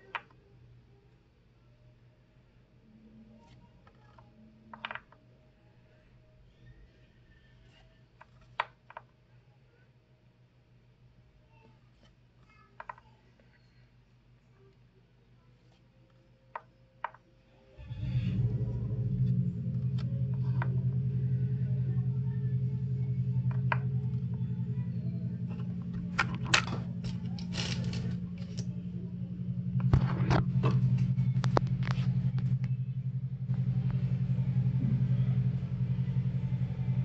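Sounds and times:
steady low hum: 13.2 - 37.0
trading cards clicking and rustling: 25.5 - 28.7.

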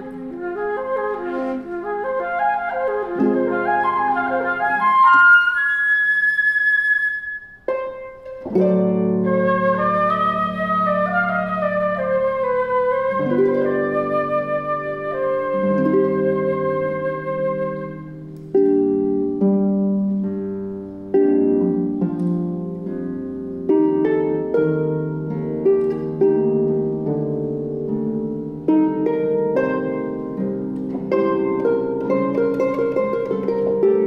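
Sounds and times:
held flute note: 0.0 - 8.4, 9.0 - 18.2
harp chords: 7.3 - 34.0.

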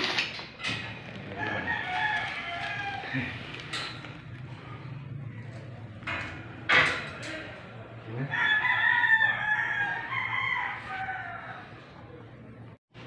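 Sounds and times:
rooster crowing: 1.2 - 3.6, 8.2 - 11.8.

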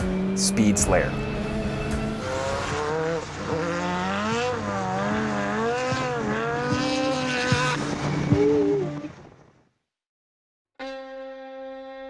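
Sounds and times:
race car engine revving: 0.0 - 7.9.

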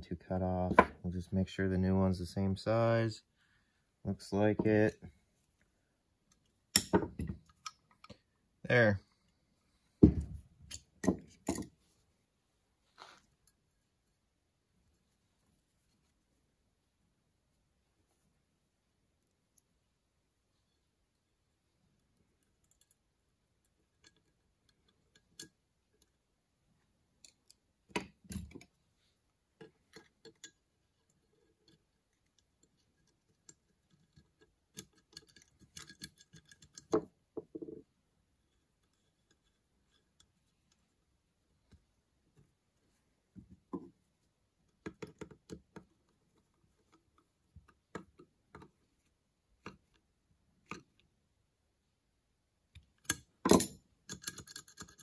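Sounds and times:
small metal parts clicking: 31.3 - 37.0, 53.0 - 55.0.

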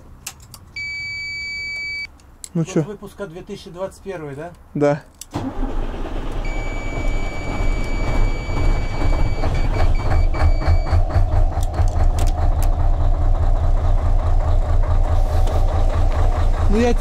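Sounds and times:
high-pitched warning beep: 0.8 - 2.1, 6.5 - 11.0
diesel engine idling: 5.3 - 17.0.

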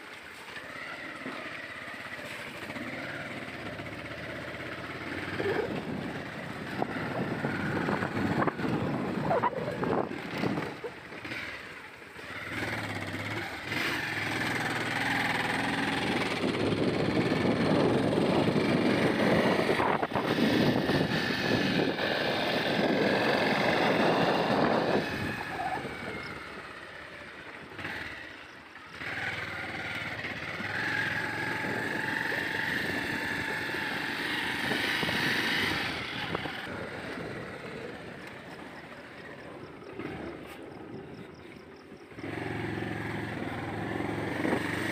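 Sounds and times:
motorcycle engine running: 0.0 - 44.9
wind noise on microphone: 5.1 - 11.3, 15.0 - 26.8, 30.6 - 38.0.

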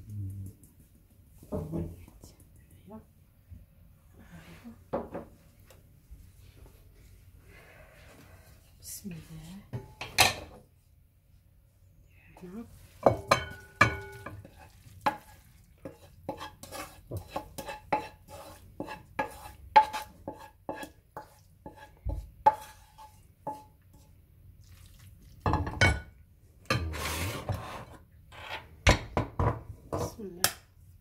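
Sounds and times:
spoon scraping and stirring: 12.7 - 26.0, 26.7 - 28.8.

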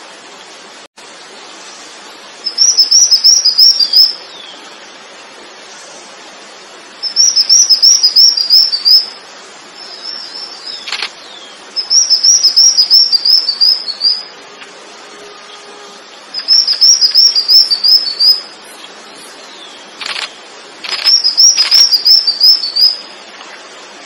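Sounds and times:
songbird chirping: 2.4 - 5.9, 7.0 - 23.6
sharp click: 10.8 - 11.2, 20.0 - 21.8.

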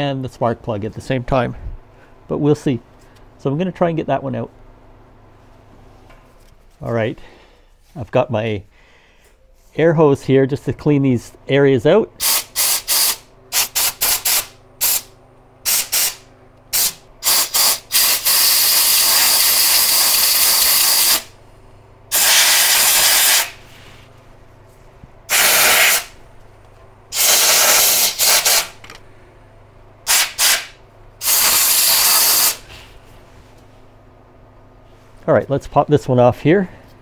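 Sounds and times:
air hose blowing: 12.2 - 21.3, 22.1 - 24.1, 25.3 - 26.2, 27.1 - 28.8, 30.1 - 33.0.

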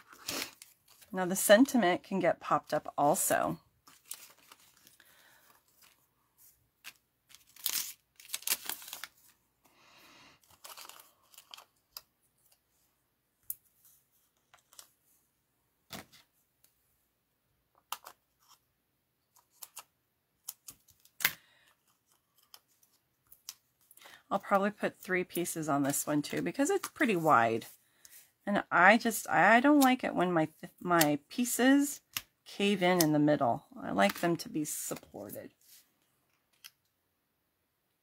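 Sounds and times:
paper rustling: 3.8 - 9.4, 10.4 - 12.6.

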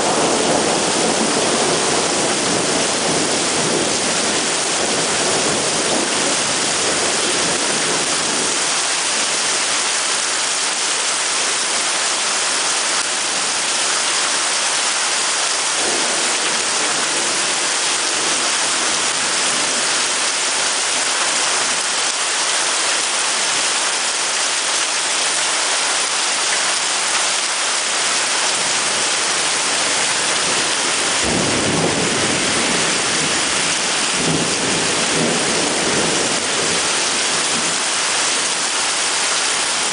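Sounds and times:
thunder rumble: 0.0 - 8.4, 15.8 - 19.8, 28.6 - 36.9
heavy rain pouring: 0.0 - 39.9.

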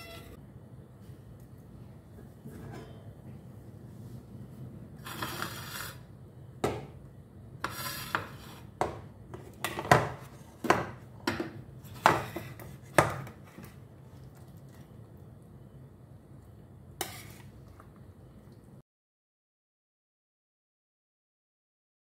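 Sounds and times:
metal ladle scraping a pan: 0.0 - 0.4, 2.4 - 3.1, 5.0 - 6.1, 7.6 - 8.8, 11.8 - 13.6, 17.0 - 17.6.

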